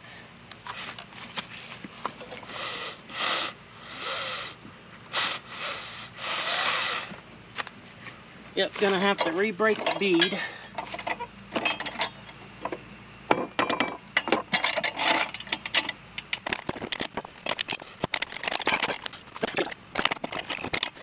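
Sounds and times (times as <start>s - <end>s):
metal clinks and knocks: 2.0s - 2.5s, 8.8s - 21.0s.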